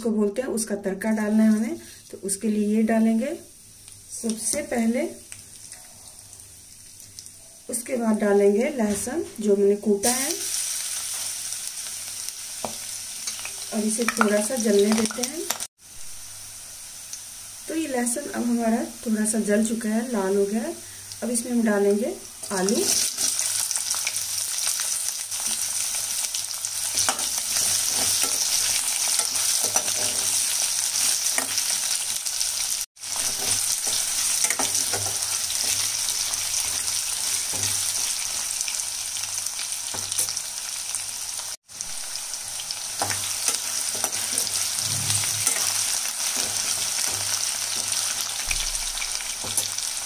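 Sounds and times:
potatoes sizzling in oil: 0.0s - 50.0s
spoon scraping a pan: 26.9s - 31.9s, 33.2s - 38.5s, 43.0s - 48.4s.

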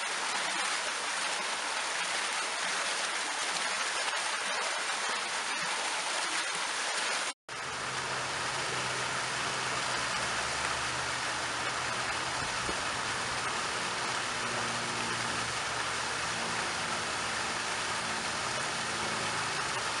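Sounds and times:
fountain water splashing on stone: 0.0s - 20.0s
water pouring down stone cascade: 0.0s - 20.0s
deep water rumble: 7.5s - 20.0s.

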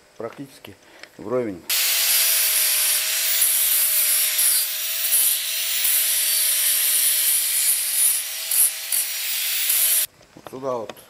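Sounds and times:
angle grinder grinding metal: 1.7s - 10.1s.

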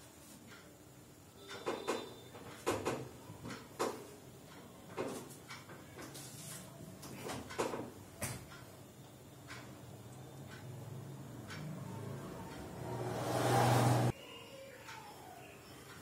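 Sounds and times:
sharp knocks and clicks: 1.4s - 6.2s, 7.0s - 8.7s.

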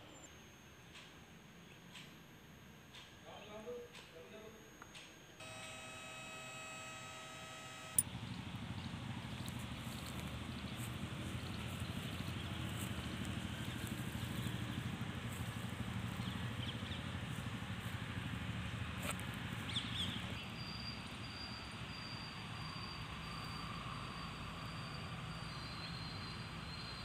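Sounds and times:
faint chirps: 0.0s - 2.6s, 5.4s - 27.0s
high-pitched tone: 5.4s - 8.0s.

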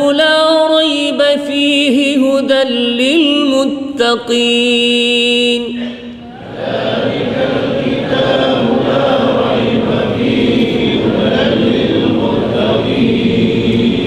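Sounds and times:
men chanting in unison: 6.3s - 14.0s.

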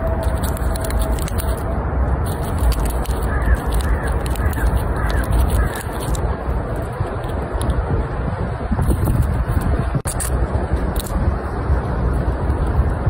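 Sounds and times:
squirrel gnawing a nut: 0.0s - 7.8s, 8.8s - 11.3s, 12.0s - 13.0s
wind noise on microphone: 0.0s - 13.0s
bird calling: 3.2s - 6.1s.

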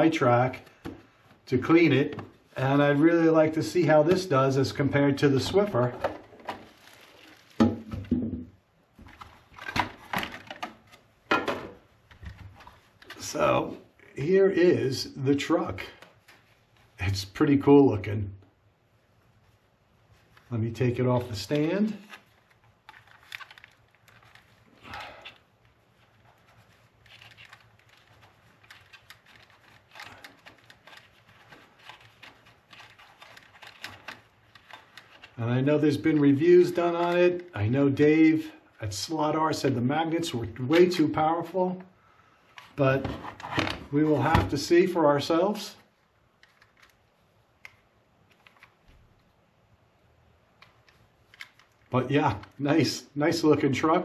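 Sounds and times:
plastic parts clicking and rustling: 9.0s - 13.3s, 21.5s - 35.4s, 46.3s - 49.3s, 50.5s - 52.6s.

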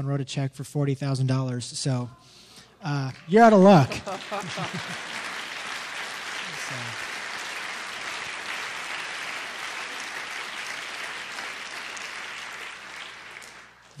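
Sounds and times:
crowd applauding: 3.1s - 14.0s.

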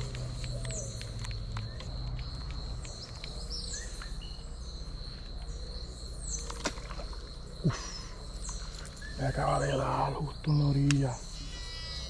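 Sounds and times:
sharp clicks: 0.0s - 4.1s, 10.5s - 11.1s
high-pitched insect drone: 0.0s - 12.0s.

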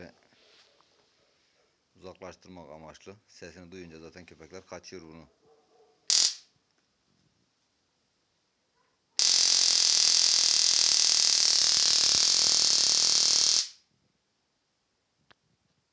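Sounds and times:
loud electric arc buzz: 6.1s - 6.4s, 9.2s - 13.8s.

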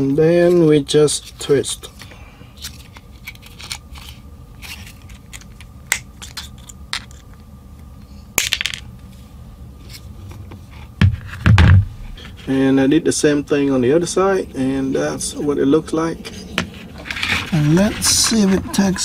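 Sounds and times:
heavy thumps: 11.0s - 12.4s.

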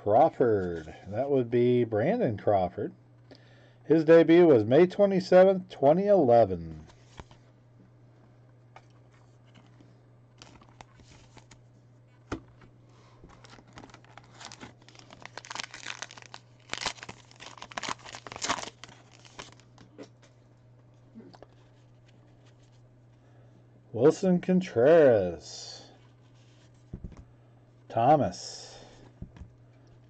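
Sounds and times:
wrapper tearing and crinkling: 13.3s - 19.8s.

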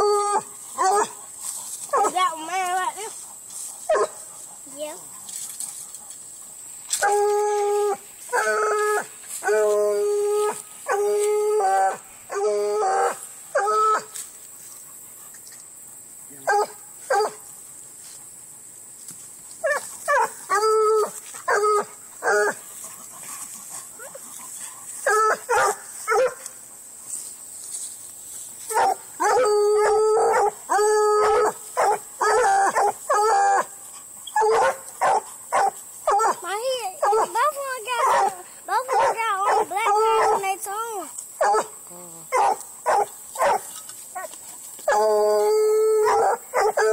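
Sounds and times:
hound baying: 19.6s - 26.5s, 28.7s - 36.4s, 37.0s - 40.5s, 41.4s - 46.9s.

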